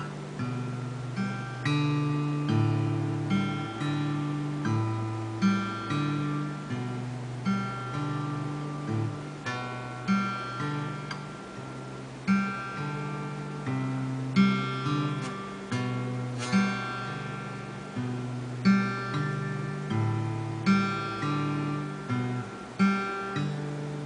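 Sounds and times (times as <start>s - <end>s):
acoustic guitar strumming chords: 0.0s - 24.0s.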